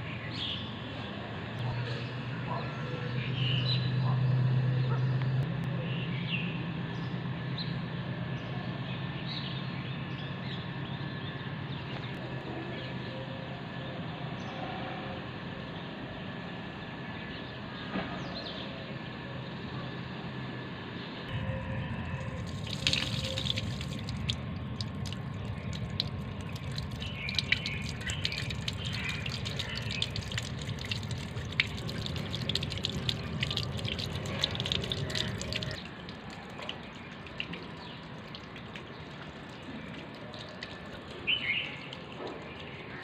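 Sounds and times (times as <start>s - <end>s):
water splashing on concrete floor: 22.1s - 43.0s
bird chirp: 25.0s - 35.9s.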